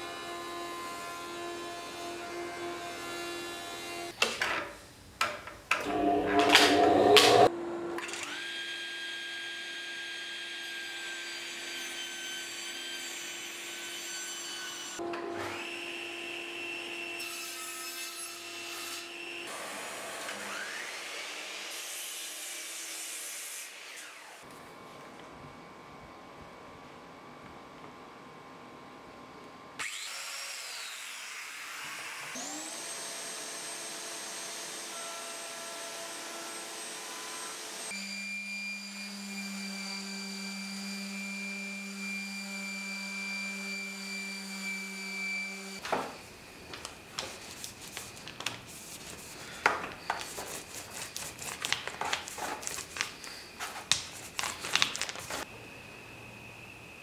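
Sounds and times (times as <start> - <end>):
machine drone with high whine: 5.8 - 7.8
orbit sander running: 5.9 - 7.5.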